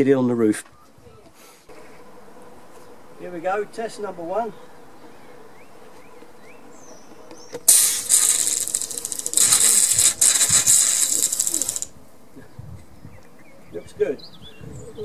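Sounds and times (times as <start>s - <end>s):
sprinkler hissing spray: 7.7s - 11.9s
sprinkler ratcheting clicks: 7.7s - 11.9s.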